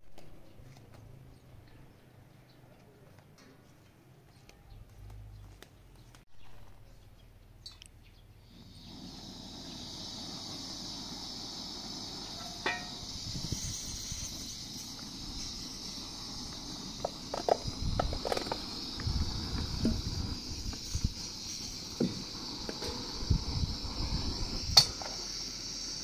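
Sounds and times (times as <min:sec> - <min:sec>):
gas burner hissing: 0:08.4 - 0:26.0
sharp clink: 0:12.3 - 0:15.0
metal pot knocking: 0:12.4 - 0:13.0.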